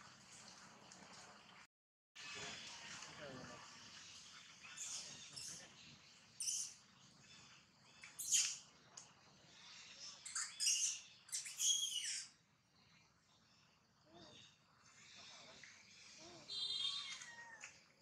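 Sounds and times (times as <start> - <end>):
high-pitched chirping animal calls: 6.4 - 6.8, 8.0 - 8.6, 10.0 - 12.4, 16.1 - 17.7.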